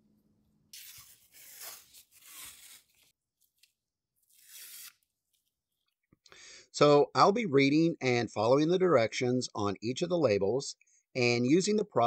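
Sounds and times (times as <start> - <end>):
tape tearing off a roll: 0.7 - 3.2, 4.2 - 5.1.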